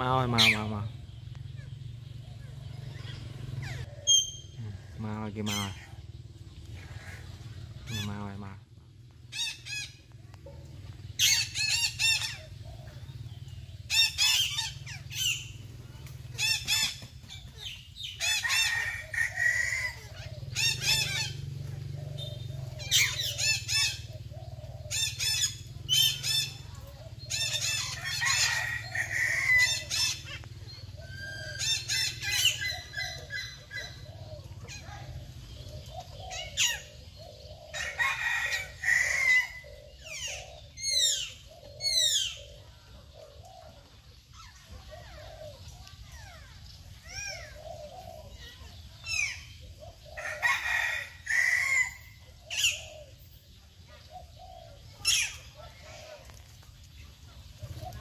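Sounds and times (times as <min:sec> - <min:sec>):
parakeets squawking: 0:00.0 - 0:00.9, 0:02.4 - 0:06.0, 0:11.2 - 0:15.7, 0:16.3 - 0:26.6, 0:27.2 - 0:35.2.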